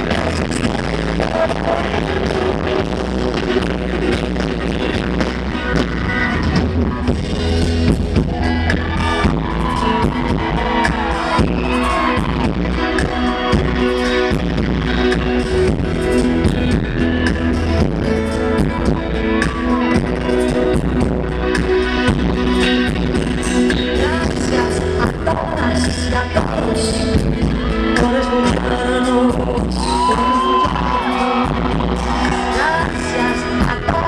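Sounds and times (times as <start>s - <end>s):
drums: 0.0s - 34.0s
electric bass: 0.0s - 34.0s.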